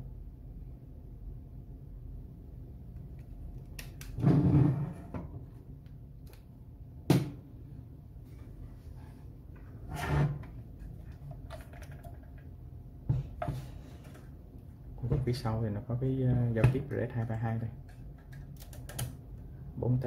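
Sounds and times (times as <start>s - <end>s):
metal case scraping: 4.2s - 5.1s.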